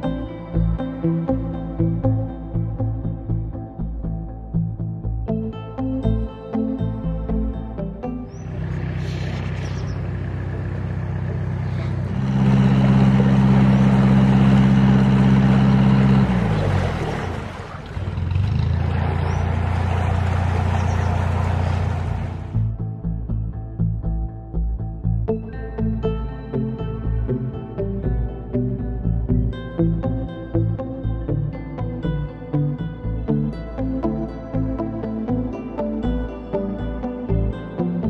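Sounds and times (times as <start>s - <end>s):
instrumental background music: 0.0s - 16.8s, 22.5s - 38.0s
diesel engine revving: 8.1s - 22.8s.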